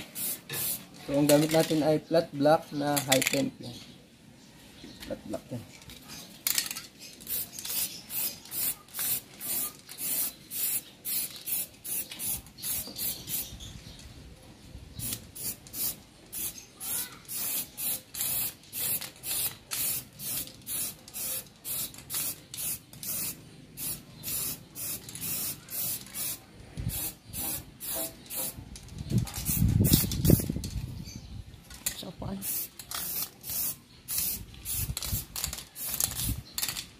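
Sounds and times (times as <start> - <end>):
aerosol can spraying in bursts: 0.0 - 0.9, 7.3 - 13.5, 15.0 - 28.6, 29.4 - 30.5, 32.4 - 36.5.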